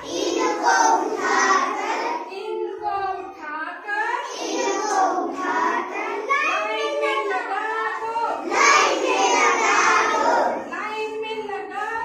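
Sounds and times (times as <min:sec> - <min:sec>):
children singing: 0:00.0 - 0:02.4, 0:04.2 - 0:07.3, 0:08.0 - 0:10.7.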